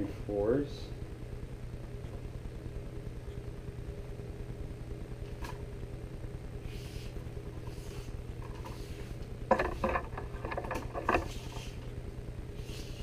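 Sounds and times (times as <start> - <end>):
steady low hum: 0.0 - 13.0
knocks and rattles: 9.5 - 11.6.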